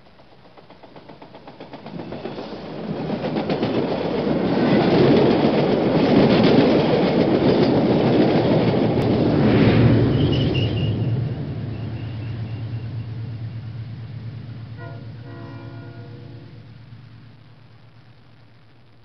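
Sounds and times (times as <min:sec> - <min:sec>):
train wheels clattering on rails: 0:00.0 - 0:09.2.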